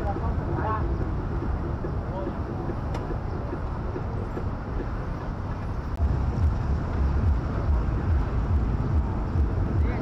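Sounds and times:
busy market street din: 0.0s - 10.0s
low rumble: 5.8s - 10.0s.

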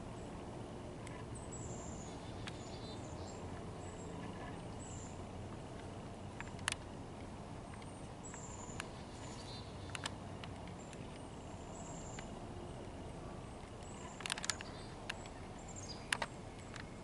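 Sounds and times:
sharp clicks: 9.8s - 11.2s, 13.6s - 15.4s, 16.0s - 16.9s.

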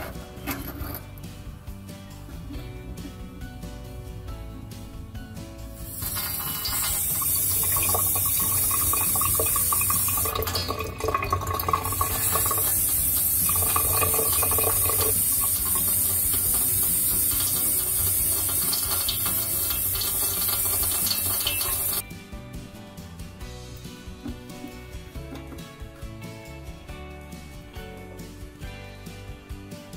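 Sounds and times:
tap water running with hiss: 5.6s - 22.0s.

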